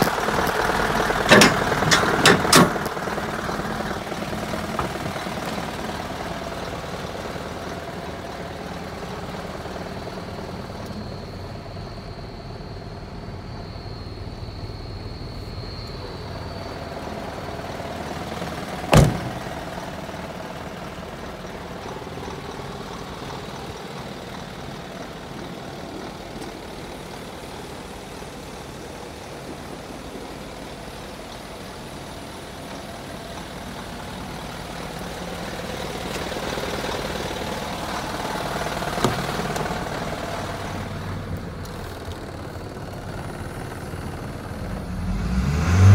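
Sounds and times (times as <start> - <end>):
diesel truck engine idling: 0.0 - 45.9.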